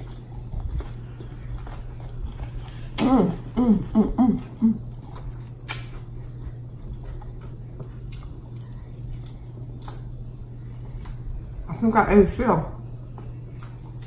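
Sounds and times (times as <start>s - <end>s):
chewing with crunches: 0.0s - 11.4s, 13.1s - 14.0s
steady low hum: 0.0s - 14.0s
person humming with full mouth: 3.0s - 5.0s.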